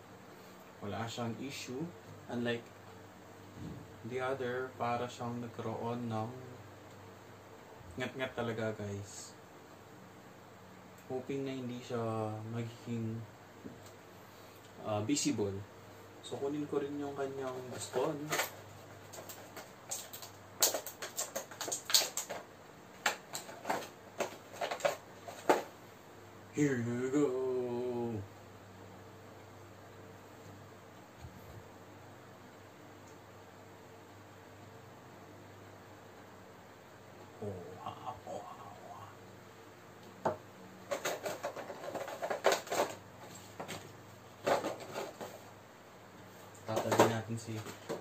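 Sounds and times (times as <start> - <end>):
plastic packaging crinkling: 17.7 - 25.7, 40.9 - 43.7.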